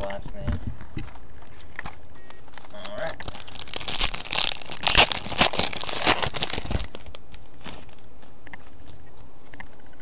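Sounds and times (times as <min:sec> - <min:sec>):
foil wrapper tearing and crinkling: 0:02.5 - 0:08.1.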